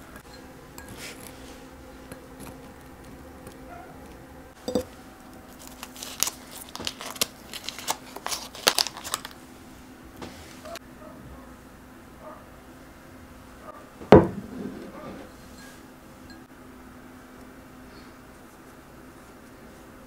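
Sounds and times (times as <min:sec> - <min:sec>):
paper crinkling and tearing: 0:05.5 - 0:09.4.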